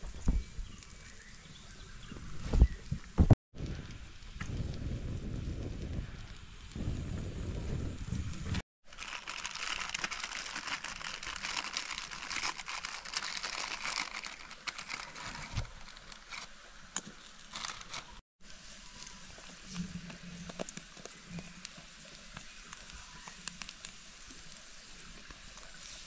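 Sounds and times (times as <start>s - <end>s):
plastic packet crinkling: 8.8s - 18.2s.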